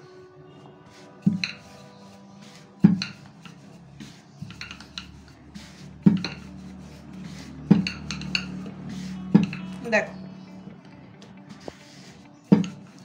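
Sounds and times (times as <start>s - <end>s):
rolling pin rolling dough: 0.6s - 13.0s
rolling pin knocking on stone: 1.2s - 1.7s, 2.8s - 3.6s, 6.0s - 6.6s, 7.7s - 8.7s, 9.3s - 9.8s, 12.5s - 12.8s.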